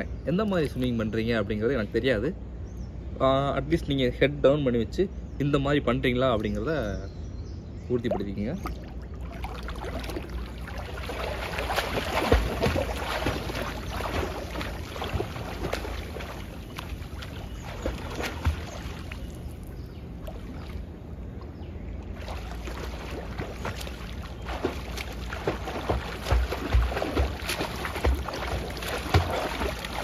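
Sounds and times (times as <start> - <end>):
swimmer splashing in pool: 8.1 - 20.8, 22.2 - 30.0.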